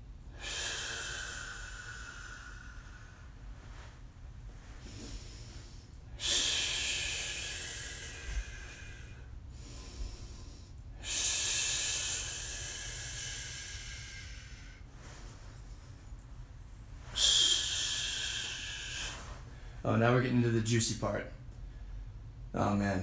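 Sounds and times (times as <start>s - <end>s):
man breathing out forcefully: 0.3s - 3.9s, 4.7s - 16.0s, 17.0s - 19.8s.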